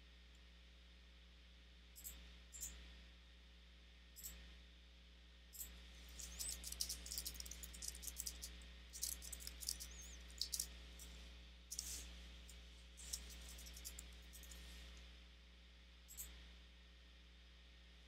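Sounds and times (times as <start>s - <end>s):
low steady hum: 0.0s - 18.0s
keyboard typing: 6.1s - 11.1s, 11.7s - 12.0s, 13.0s - 14.6s.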